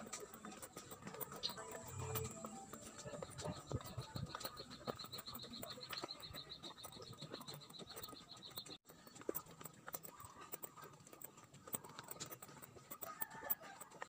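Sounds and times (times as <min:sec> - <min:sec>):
rapid high-pitched chirping: 0:00.0 - 0:09.5
light footsteps on concrete: 0:00.0 - 0:14.0.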